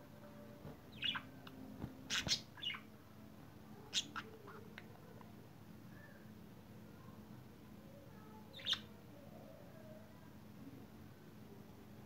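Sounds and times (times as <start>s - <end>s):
budgerigars chirping: 0.9s - 1.3s, 2.1s - 2.8s.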